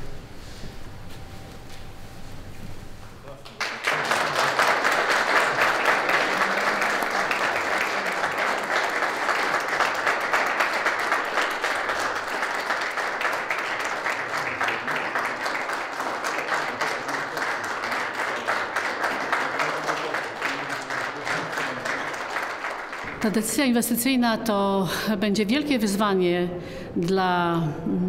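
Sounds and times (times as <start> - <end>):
audience applauding: 3.3 - 23.4.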